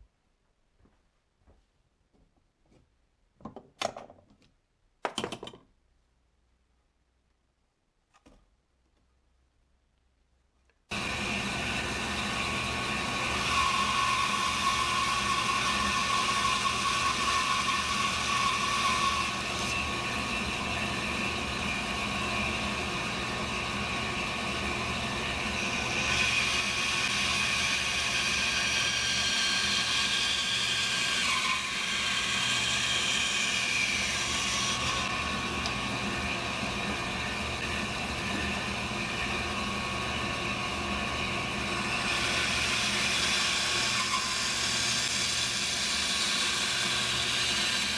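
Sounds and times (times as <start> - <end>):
band saw cutting wood: 10.9 - 47.9.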